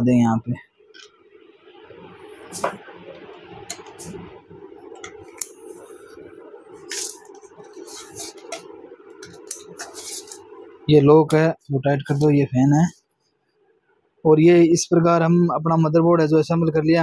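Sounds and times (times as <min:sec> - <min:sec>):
low hum: 0:00.0 - 0:12.9.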